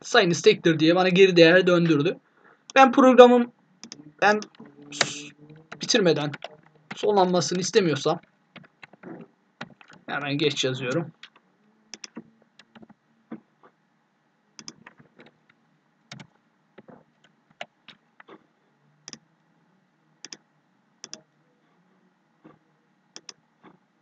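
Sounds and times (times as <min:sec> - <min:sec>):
keyboard and mouse clicks: 0:03.8 - 0:07.1, 0:08.6 - 0:10.1, 0:11.1 - 0:13.0, 0:14.6 - 0:18.4, 0:21.0 - 0:21.2, 0:23.2 - 0:23.8.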